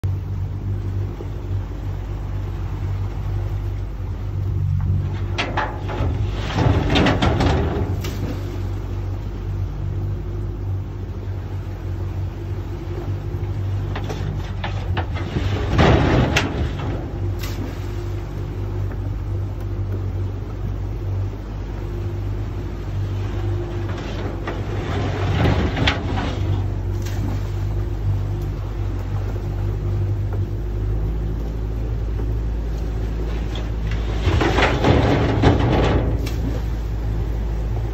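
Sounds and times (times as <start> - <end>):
boat engine running: 0.0 - 37.9
wire creels scraping over stern: 4.7 - 9.1, 12.4 - 20.7, 22.2 - 37.9.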